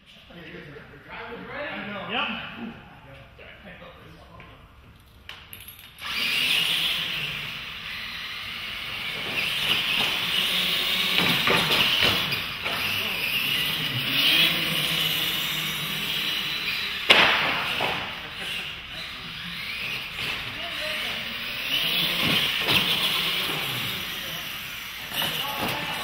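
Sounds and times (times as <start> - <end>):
toy truck electric motors whining: 5.9 - 26.0.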